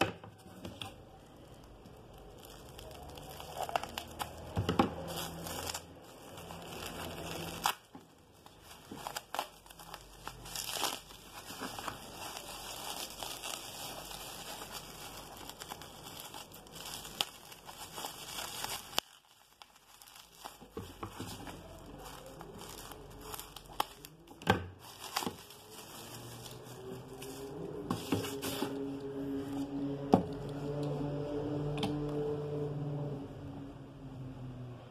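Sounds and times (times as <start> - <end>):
bubble wrap crinkling: 0.4 - 32.3.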